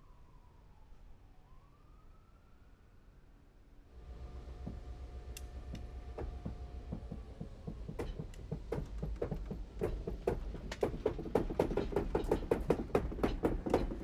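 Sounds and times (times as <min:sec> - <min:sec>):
low locomotive rumble: 0:03.9 - 0:14.0
running gear clanking and knocking: 0:06.1 - 0:14.0.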